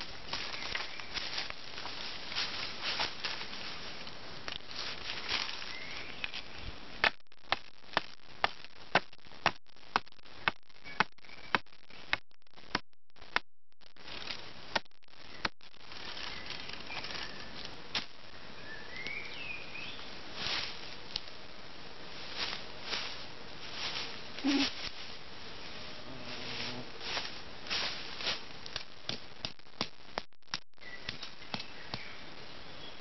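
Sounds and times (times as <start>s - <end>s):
birds chirping: 0.4s - 1.4s, 5.5s - 6.8s, 15.2s - 17.6s, 18.3s - 20.2s, 30.8s - 33.0s.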